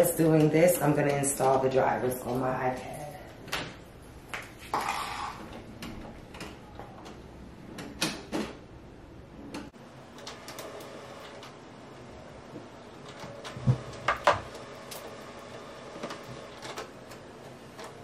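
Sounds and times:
printer whir: 9.8 - 18.0.

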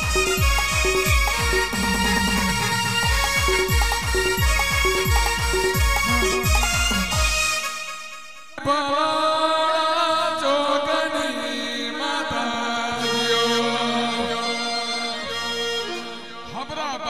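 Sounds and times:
sustained accompaniment: 0.0 - 8.4
person chanting a devotional song: 4.4 - 7.6, 8.6 - 17.0.

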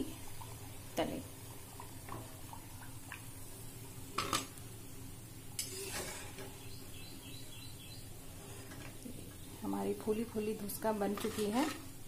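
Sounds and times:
hot oil sizzling: 0.0 - 12.0
steel ladle clinking and scraping: 5.6 - 6.5.

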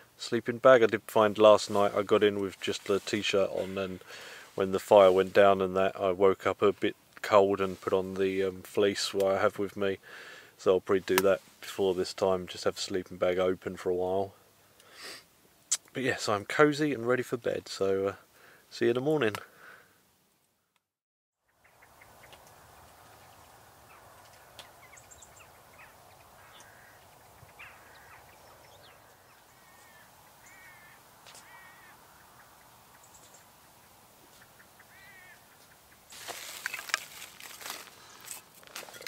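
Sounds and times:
dry wood rustling and clattering: 0.7 - 5.6, 36.1 - 39.0
birds calling: 21.4 - 39.0.

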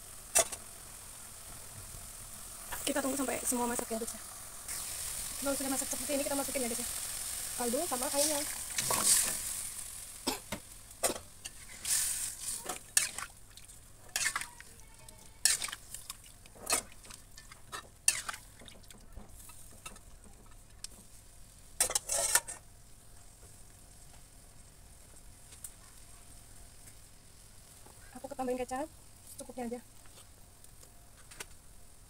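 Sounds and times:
oil sizzling: 0.0 - 32.0
metal spatula scraping wok: 7.9 - 13.3, 14.0 - 14.7, 15.4 - 16.0, 16.6 - 18.6, 21.8 - 22.6.

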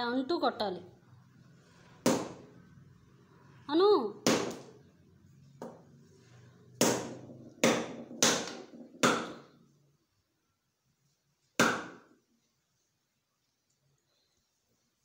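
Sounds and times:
coconut knocking on stone floor: 2.0 - 2.5, 4.2 - 4.7, 5.6 - 5.8, 6.8 - 9.5, 11.6 - 12.2.

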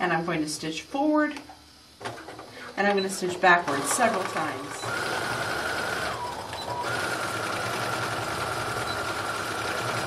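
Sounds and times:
electric sewing machine running: 3.6 - 10.0.

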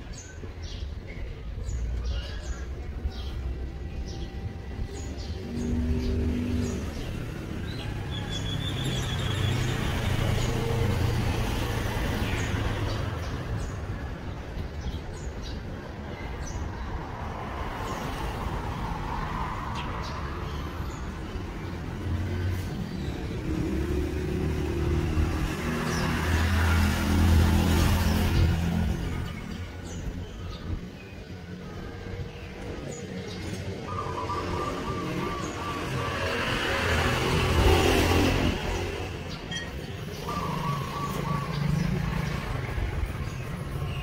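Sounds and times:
vehicles passing: 0.0 - 44.0
bird chirps: 39.3 - 42.3.

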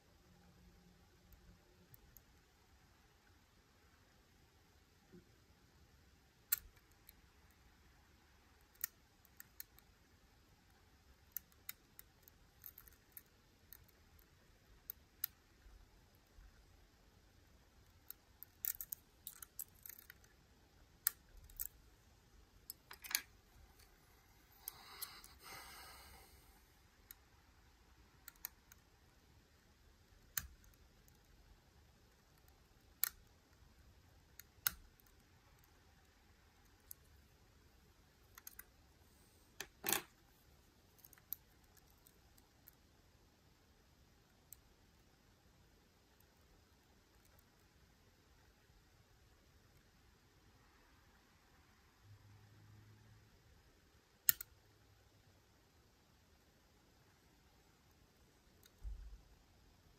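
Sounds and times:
lock-picking tools clicking: 17.8 - 20.3, 39.6 - 40.1.

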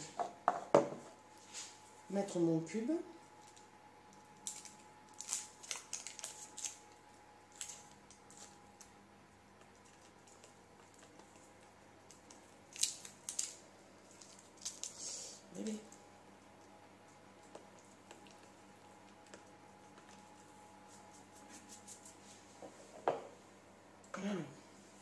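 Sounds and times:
foil wrapper crackling: 3.4 - 9.0, 9.8 - 16.0.

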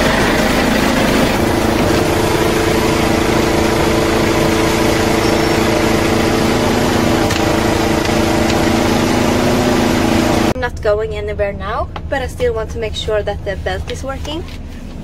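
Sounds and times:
diesel truck engine idling: 0.0 - 10.6.

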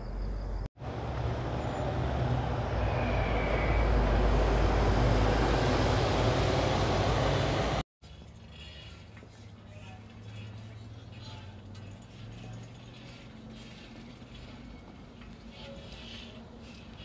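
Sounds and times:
bus engine rumble: 0.0 - 7.8.

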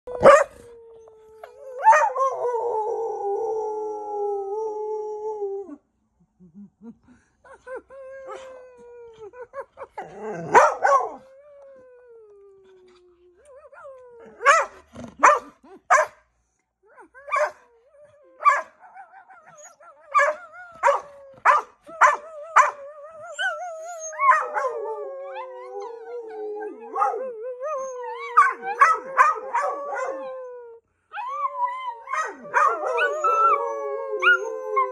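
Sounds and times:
dog howling: 0.1 - 5.7, 17.2 - 34.9
dog barking: 0.2 - 0.5, 14.4 - 16.2.

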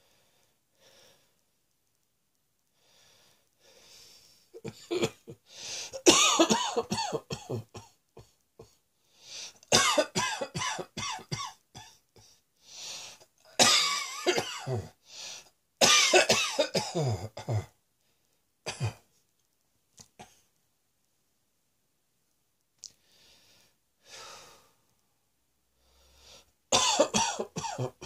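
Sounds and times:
faint breathing: 0.0 - 1.4, 2.7 - 4.6, 5.4 - 6.0, 9.0 - 9.7, 12.2 - 13.3, 15.0 - 15.6, 23.0 - 25.1, 25.7 - 26.6
person coughing: 4.6 - 8.7, 9.7 - 12.0, 13.6 - 14.9, 15.8 - 17.7, 18.7 - 19.0, 26.8 - 28.0
sharp breaths: 5.5 - 6.0.

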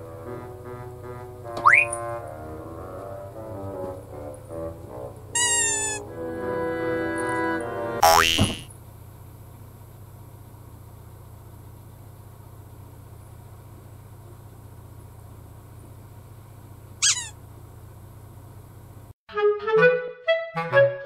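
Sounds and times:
low room hum: 0.0 - 19.1
high-pitched falling squeak: 1.6 - 2.1, 5.4 - 6.0, 17.0 - 17.4.

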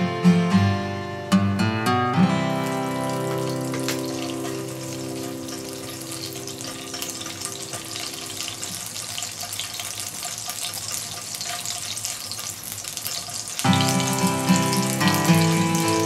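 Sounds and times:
fish sizzling in oil: 2.4 - 16.0.

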